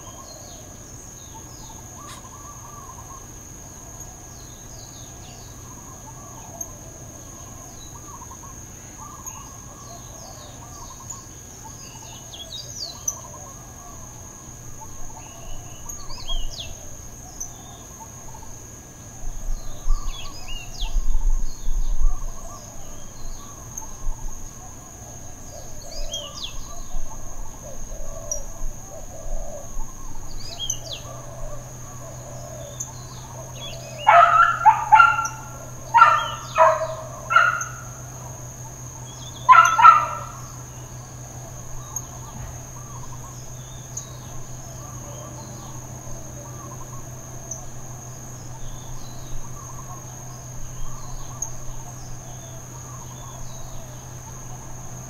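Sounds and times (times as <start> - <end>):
birds chirping: 0.0 - 3.4, 28.0 - 55.0
insect drone: 0.0 - 55.0.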